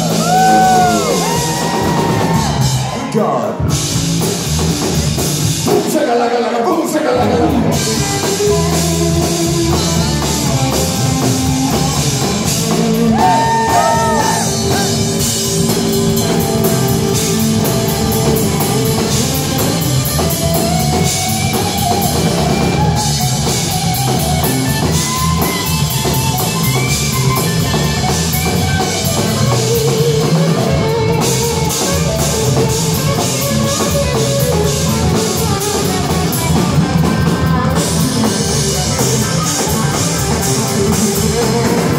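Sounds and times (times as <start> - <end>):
electric bass: 0.0 - 5.9, 7.1 - 41.9
electric guitar: 0.0 - 6.0, 7.2 - 41.9
drum kit: 0.0 - 6.1, 7.2 - 41.9.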